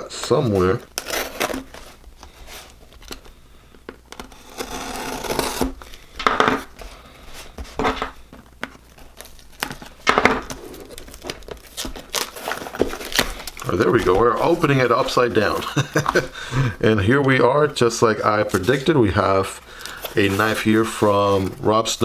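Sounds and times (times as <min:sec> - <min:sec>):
tape tearing rips: 0:04.2 - 0:05.8.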